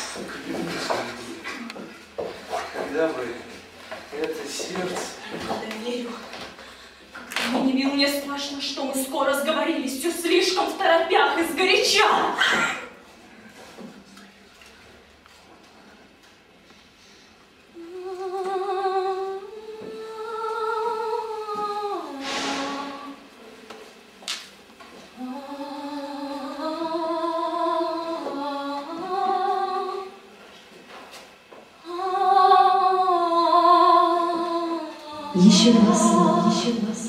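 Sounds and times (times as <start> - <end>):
short hiss: 22.2 - 23.0
high voice humming melody: 35.1 - 37.0.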